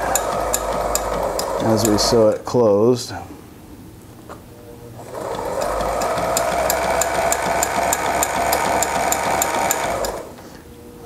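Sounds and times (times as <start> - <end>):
sewing machine motor hum: 0.0 - 2.4, 5.0 - 10.4.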